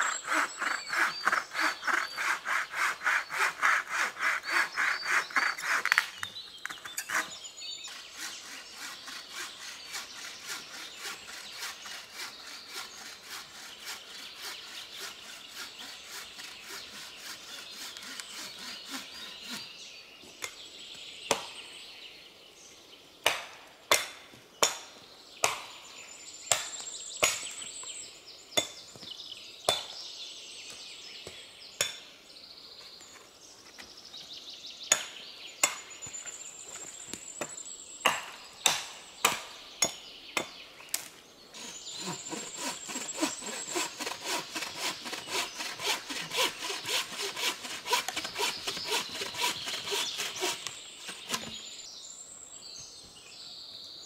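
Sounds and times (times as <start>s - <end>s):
bow saw rasping through branch: 0.0s - 6.0s, 6.9s - 19.7s, 41.6s - 51.6s.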